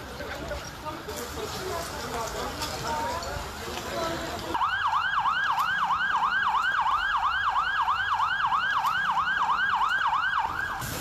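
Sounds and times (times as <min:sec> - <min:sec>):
fire engine siren yelping: 0:04.5 - 0:11.0.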